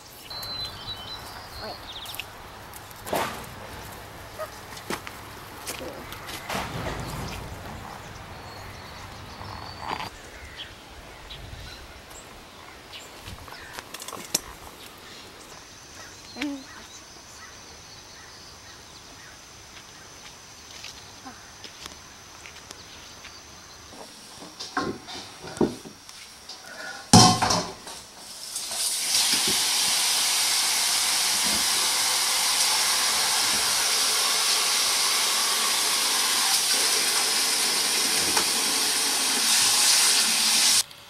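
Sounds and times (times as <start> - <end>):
kitchenware knocking and clattering: 27.2 - 27.8.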